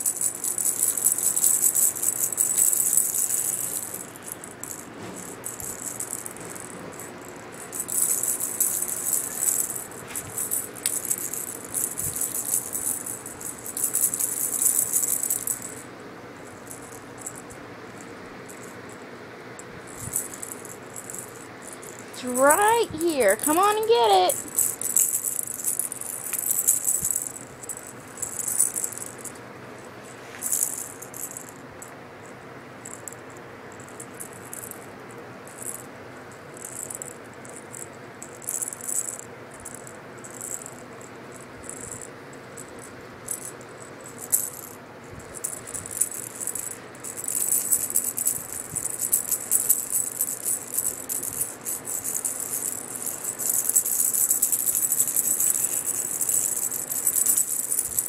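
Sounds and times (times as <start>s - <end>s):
cat toy rattling: 0.0s - 15.9s, 19.9s - 29.4s, 41.6s - 58.0s.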